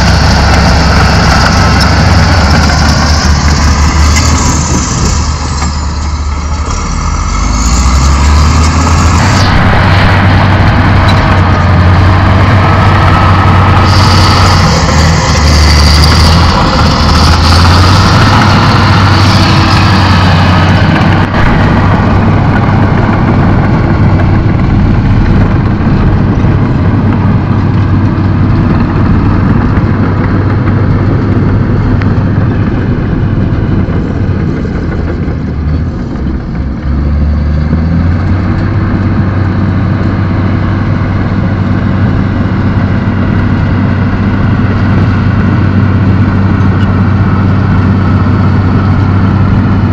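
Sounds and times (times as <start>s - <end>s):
bulldozer diesel engine droning: 0.0s - 49.9s.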